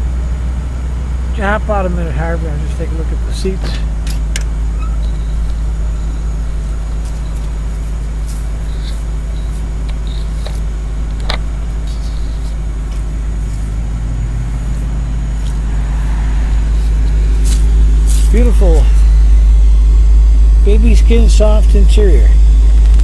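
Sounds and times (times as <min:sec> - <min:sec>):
car engine idling: 0:00.0 - 0:23.0
sharp clicks: 0:09.6 - 0:13.6.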